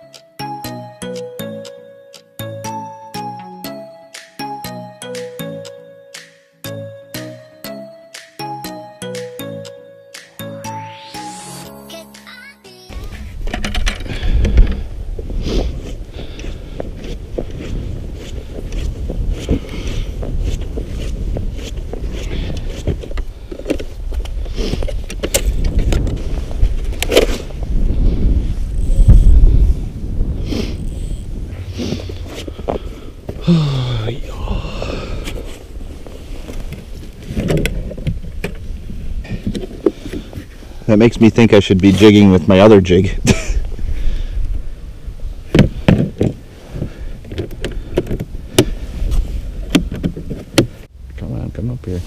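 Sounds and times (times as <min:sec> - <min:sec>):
wind rumbling on microphone: 0:13.0 - 0:33.5, 0:34.1 - 0:40.9, 0:43.1 - 0:51.5.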